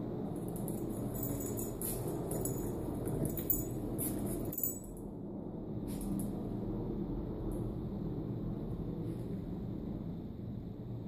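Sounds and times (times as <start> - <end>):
low hum: 0.0 - 11.0
dog collar tags jingling: 0.4 - 5.0.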